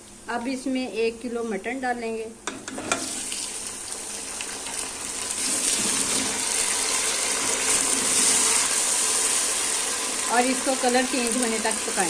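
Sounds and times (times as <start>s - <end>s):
meat sizzling in hot fat: 2.7s - 12.0s.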